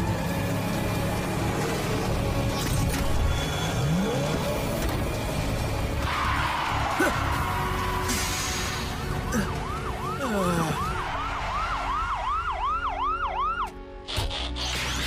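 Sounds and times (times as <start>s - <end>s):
police siren yelping: 9.2s - 13.8s.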